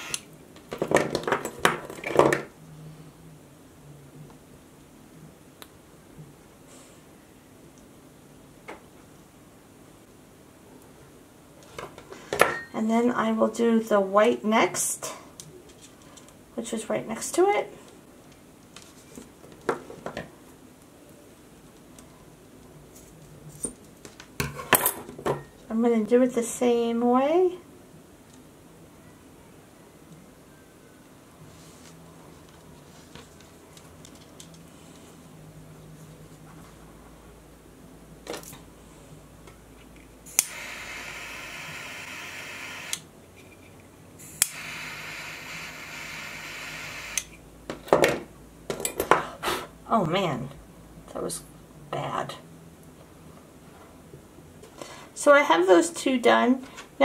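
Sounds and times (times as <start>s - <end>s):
torch lighter click: 40.3s - 41.4s, 44.3s - 45.6s
torch flame hissing: 40.3s - 43.0s, 44.2s - 47.3s.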